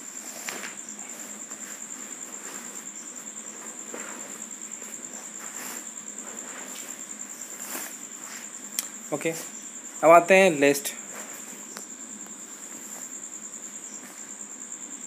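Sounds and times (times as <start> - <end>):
cricket chirring: 0.0 - 15.0.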